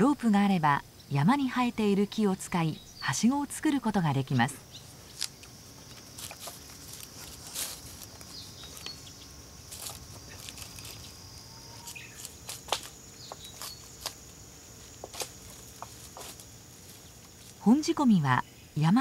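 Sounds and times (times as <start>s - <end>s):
high insect drone: 0.0s - 19.0s
rope knocking and rustling on wood: 5.2s - 9.0s, 12.2s - 17.6s.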